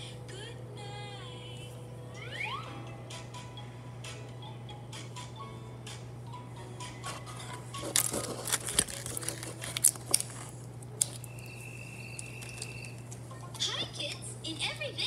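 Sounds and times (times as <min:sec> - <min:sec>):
steady low hum: 0:00.0 - 0:15.0.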